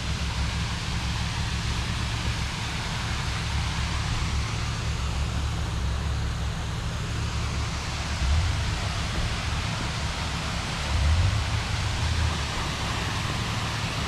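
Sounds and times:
waterfall roaring: 7.1 - 14.0.

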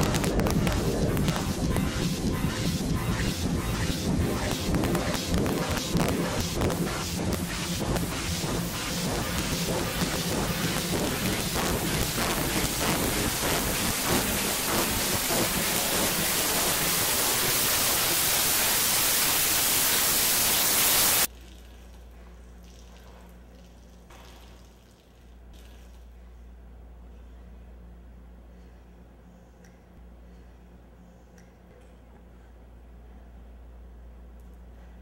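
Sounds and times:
dense electronic rain-like noise: 0.0 - 21.3.

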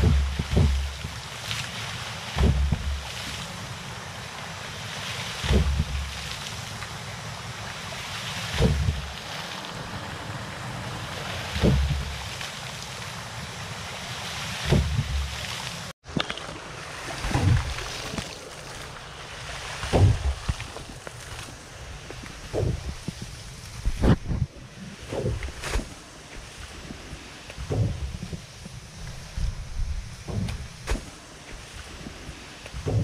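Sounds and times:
water-hammer thumps of pump: 0.0 - 1.2, 2.3 - 3.4, 5.4 - 6.4, 8.5 - 9.2, 11.5 - 12.4, 14.6 - 15.4, 16.1 - 18.9, 19.7 - 21.5, 22.1 - 24.5, 25.1 - 26.5, 27.5 - 28.5, 29.1 - 33.0
water rushing: 0.0 - 33.0.

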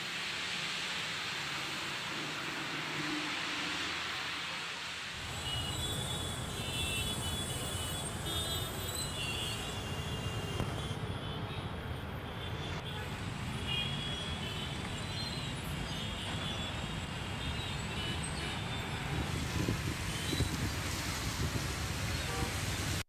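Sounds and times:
heavy city traffic: 0.0 - 23.0.

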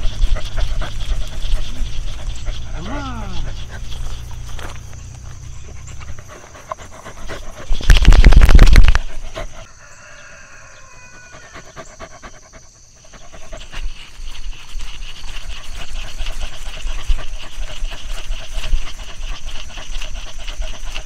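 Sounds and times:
dog panting: 0.0 - 8.2, 8.8 - 9.7, 11.3 - 21.0.

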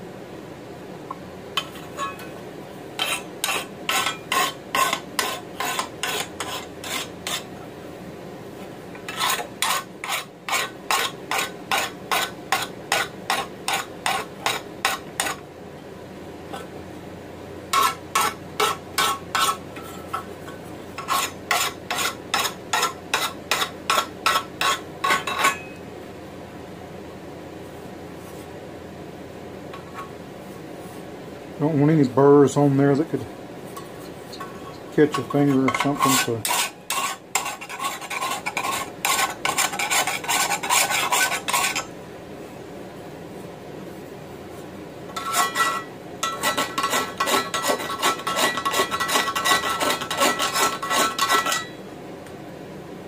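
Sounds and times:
hand file rasping on metal: 3.0 - 7.5, 9.1 - 15.4, 21.0 - 25.3, 35.1 - 41.9, 45.2 - 51.7.

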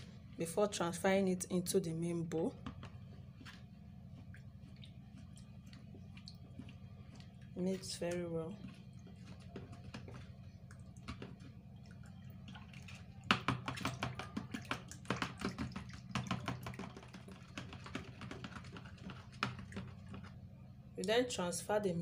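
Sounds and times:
metal spoon stirring in plastic bowl: 5.7 - 20.4.

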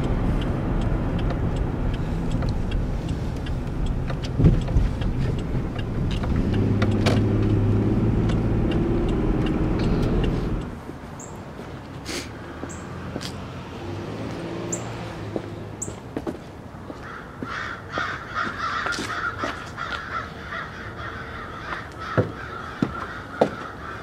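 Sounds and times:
footsteps on wooden steps: 12.6 - 13.4, 15.3 - 20.0, 21.7 - 23.8
crows cawing: 16.9 - 24.0.

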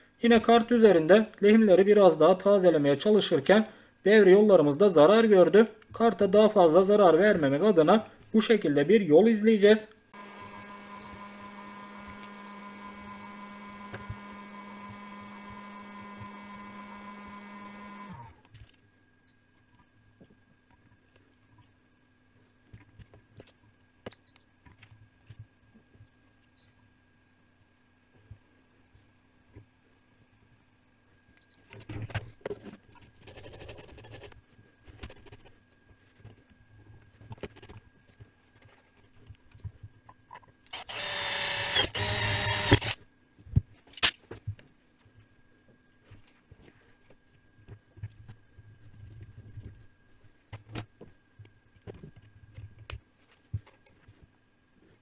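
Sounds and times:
faint electrical hum: 0.0 - 55.0
drill boring into metal: 10.2 - 18.3, 40.7 - 43.0.

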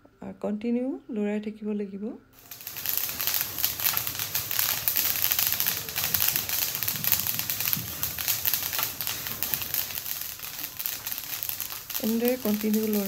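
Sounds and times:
seeds crackling and popping: 2.4 - 13.0.

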